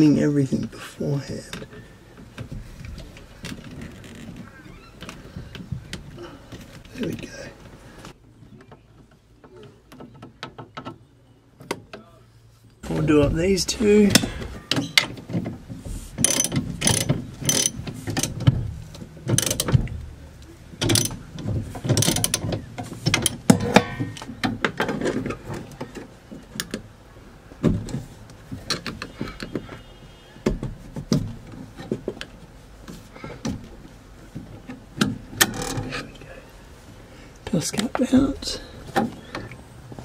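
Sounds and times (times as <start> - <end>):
hand ratchet clicking: 16.2 - 18.4, 19.3 - 19.8, 20.8 - 21.2, 21.9 - 22.5.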